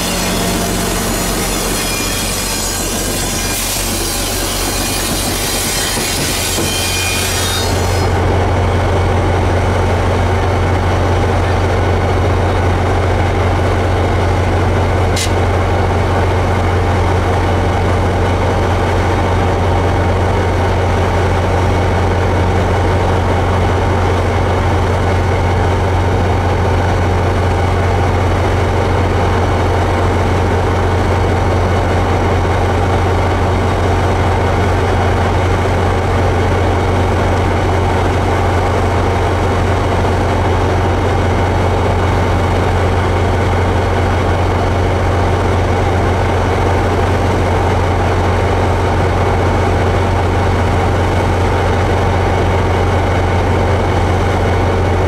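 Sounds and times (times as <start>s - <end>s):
railcar wheel squeal: 0.0s - 8.2s, 15.1s - 15.5s
diesel locomotive engine drone: 0.0s - 55.0s
sharp click: 15.2s - 15.4s.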